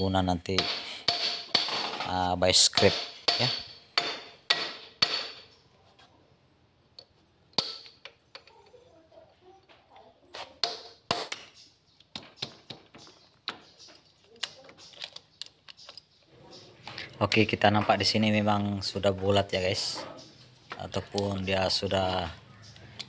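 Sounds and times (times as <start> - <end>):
hammer striking chisel on metal: 0.5 - 1.8, 2.6 - 5.5.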